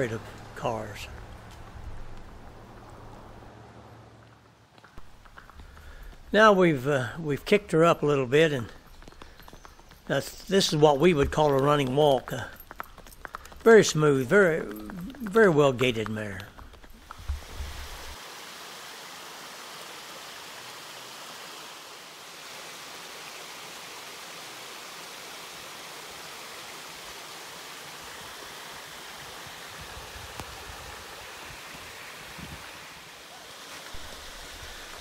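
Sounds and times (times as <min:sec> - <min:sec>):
water rushing over concrete: 0:13.7 - 0:35.0.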